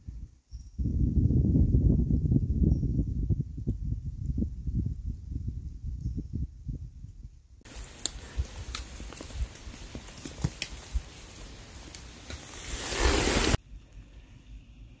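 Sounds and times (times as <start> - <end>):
outdoor rustling: 7.6 - 15.0
sharp clicks and crackles: 7.9 - 11.0.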